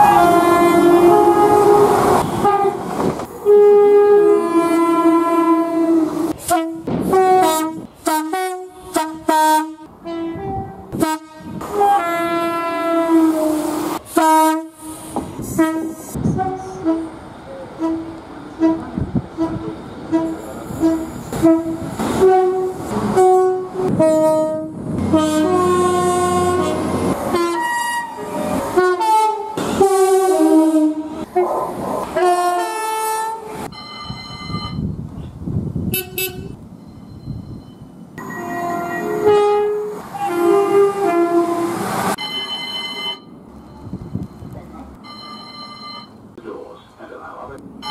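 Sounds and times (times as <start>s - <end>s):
train horn blasts: 0.0s - 2.8s, 3.4s - 17.2s, 17.8s - 31.5s, 32.2s - 33.6s, 35.9s - 36.6s, 38.2s - 41.8s
train running noise: 0.0s - 47.9s.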